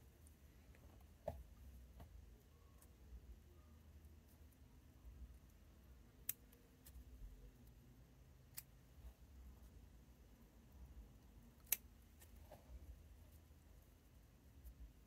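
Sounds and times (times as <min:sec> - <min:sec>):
scissors snipping: 0:11.6 - 0:12.3.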